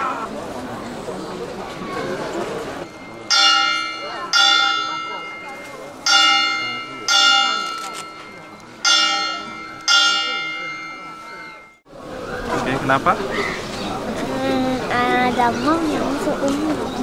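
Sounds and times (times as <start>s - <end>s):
large metal bell ringing: 2.8s - 11.8s.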